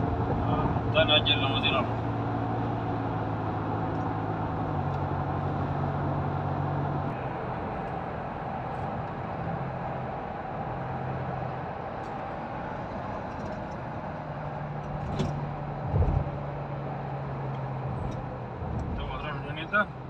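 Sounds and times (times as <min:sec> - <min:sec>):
low engine hum: 0:00.0 - 0:20.0
tyre rumble on highway: 0:11.8 - 0:20.0
short thump: 0:15.0 - 0:16.3.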